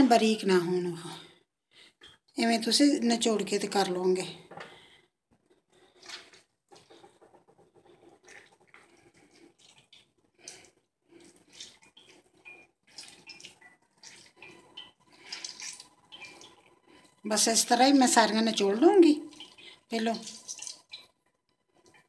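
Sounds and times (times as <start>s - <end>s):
wet squelching: 5.7s - 17.2s, 19.2s - 21.2s
water dripping: 5.8s - 17.6s, 18.2s - 22.0s.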